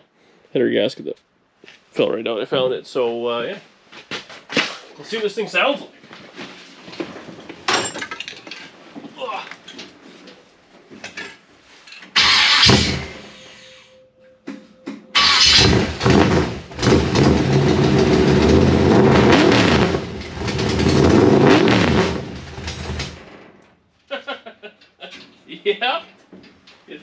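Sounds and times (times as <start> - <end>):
engine clicking: 12.2 - 13.0, 15.2 - 21.2
car engine starting and revving: 12.2 - 13.2, 15.2 - 23.3.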